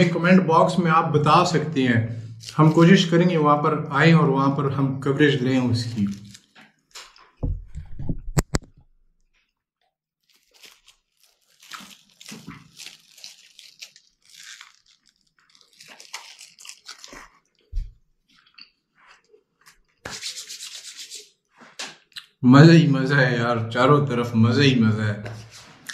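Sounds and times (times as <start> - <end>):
paper wrapper crackling: 5.8 - 7.2, 10.2 - 17.9
person chewing food: 6.0 - 7.4, 10.2 - 20.0.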